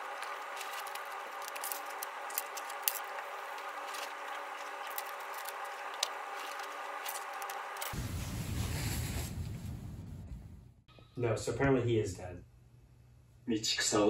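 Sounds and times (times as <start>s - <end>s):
wipe packet rustling: 0.0s - 8.0s
room hum: 0.0s - 14.0s.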